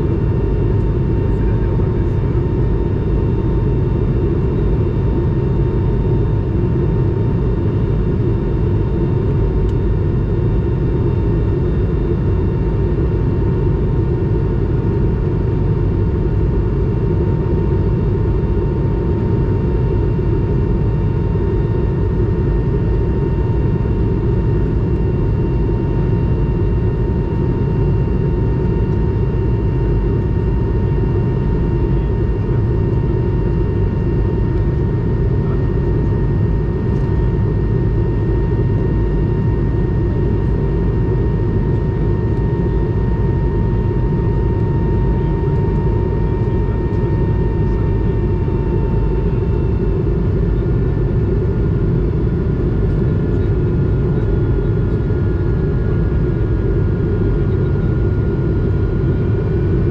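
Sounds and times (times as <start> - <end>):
aircraft cabin engine rumble: 0.0 - 59.9
thin steady whine: 19.4 - 54.3.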